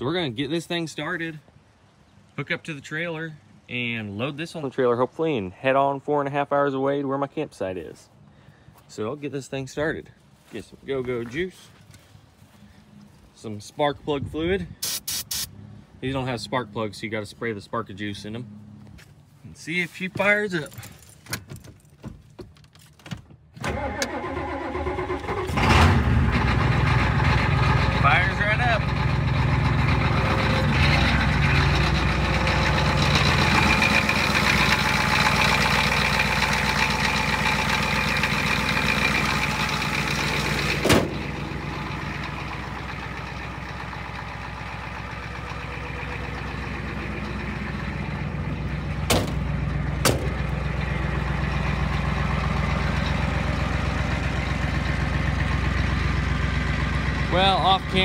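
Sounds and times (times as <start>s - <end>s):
diesel engine idling: 23.7s - 58.0s.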